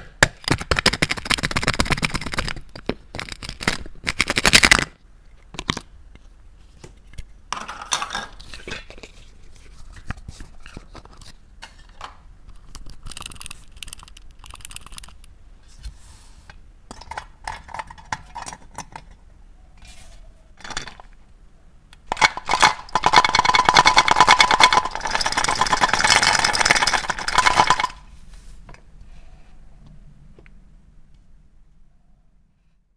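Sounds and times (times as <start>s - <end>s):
plastic toys clicking and knocking: 0.0s - 5.9s, 10.6s - 15.3s, 16.9s - 19.2s, 20.6s - 21.2s, 22.0s - 28.0s.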